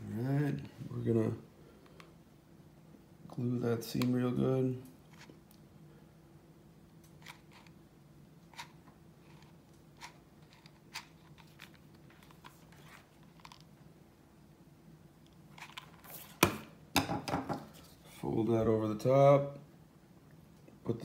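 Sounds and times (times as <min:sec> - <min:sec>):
faint steady hum: 0:00.0 - 0:21.0
soft rustles: 0:08.6 - 0:13.7.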